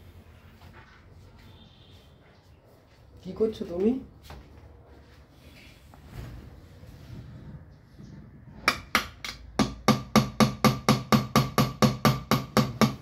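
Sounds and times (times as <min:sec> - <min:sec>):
hammer striking nail into wood: 0:08.6 - 0:13.0.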